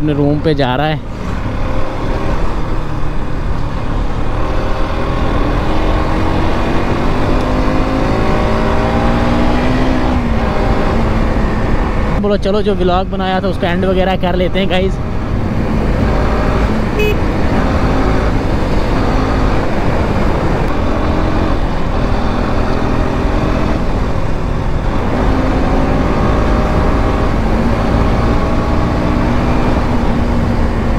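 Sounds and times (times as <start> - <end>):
motorcycle engine running: 16.6 - 21.4.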